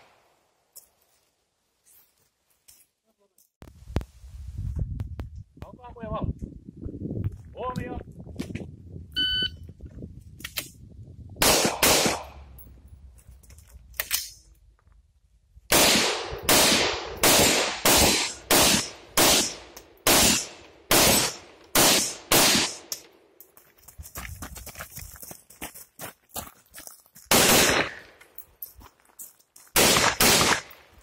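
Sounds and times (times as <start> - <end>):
shot timer beep: 9.2 - 9.6
pistol shots: 11.4 - 12.4, 15.7 - 23.0, 27.3 - 28.1, 29.8 - 30.8
rifle shots: 11.4 - 12.4, 15.7 - 22.9, 27.3 - 28.1, 29.8 - 30.8.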